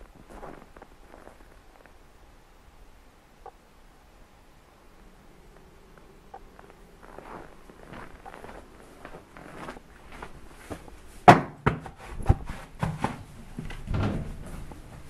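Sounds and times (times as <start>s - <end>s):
footsteps: 0.0s - 2.0s, 5.5s - 15.0s
sharp knocks and clunks: 11.3s - 14.4s.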